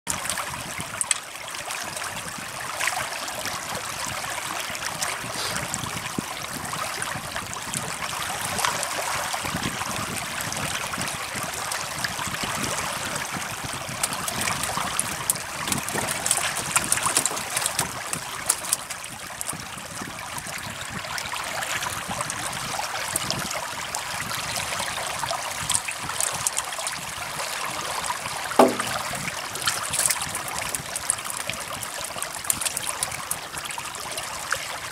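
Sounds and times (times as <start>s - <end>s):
fish splashing in water: 12.7s - 19.7s, 21.3s - 34.2s.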